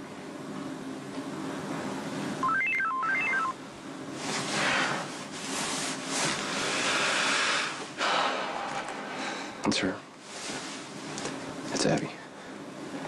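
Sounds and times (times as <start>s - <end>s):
phone message alert beeps: 2.4s - 3.6s.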